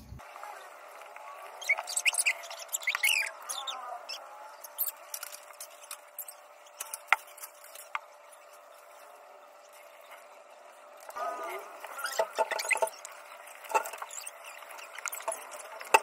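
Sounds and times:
short high squeaks: 1.6s - 5.0s.

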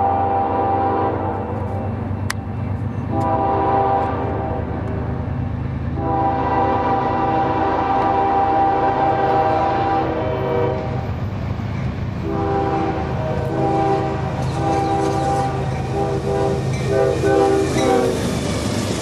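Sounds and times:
locomotive air horn blasts: 0.0s - 1.8s, 3.1s - 5.0s, 6.0s - 11.1s, 12.2s - 18.2s
diesel locomotive rumble: 0.0s - 19.0s.

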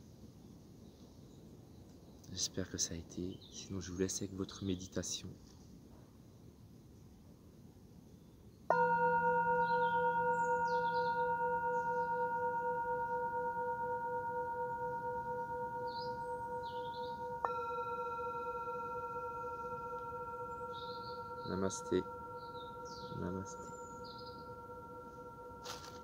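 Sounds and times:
birds chirping faintly: 0.0s - 26.0s
singing bowl struck and ringing: 8.7s - 26.0s.

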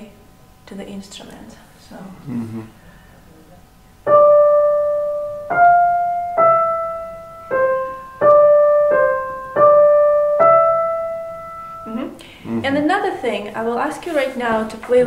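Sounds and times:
digital piano notes: 4.1s - 13.0s.

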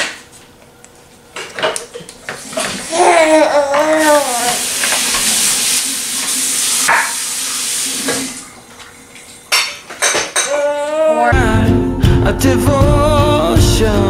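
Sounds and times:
baby babbling: 2.8s - 4.8s, 10.4s - 11.5s.

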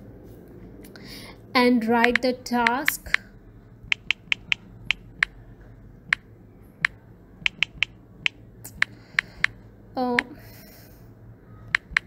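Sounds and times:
phone keyboard clicks: 2.0s - 3.2s, 3.9s - 5.3s, 6.8s - 9.6s, 11.7s - 12.0s.

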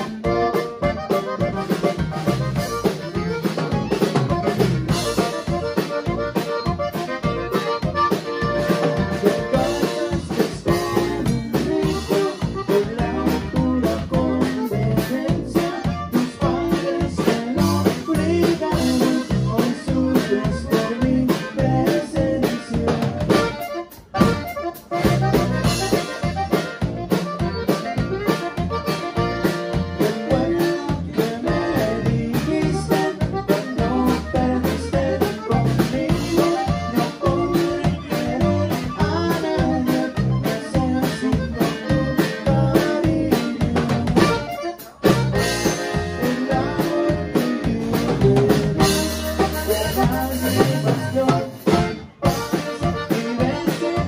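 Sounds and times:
acoustic guitar: 0.0s - 54.0s
button accordion: 0.0s - 54.0s
drum kit: 0.0s - 54.0s
electric bass: 0.0s - 54.0s
person singing at a microphone: 8.9s - 23.5s, 29.9s - 44.5s, 45.7s - 54.0s.

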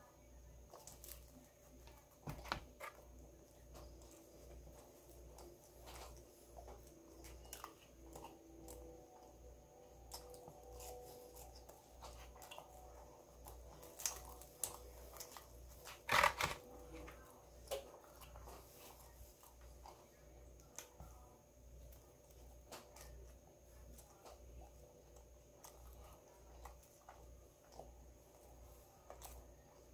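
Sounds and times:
person chewing food: 0.6s - 16.3s.

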